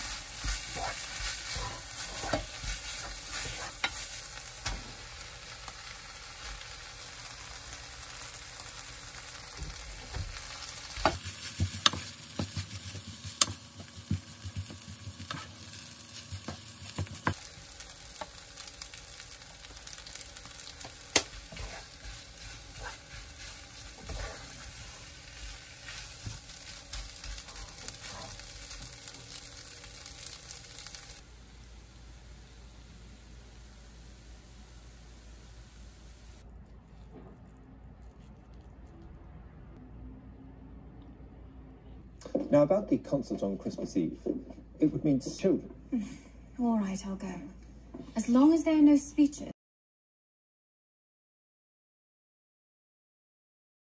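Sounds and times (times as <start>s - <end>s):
fried rice sizzling in a pot: 0.0s - 36.4s
spatula tapping and scraping pot: 11.0s - 15.5s.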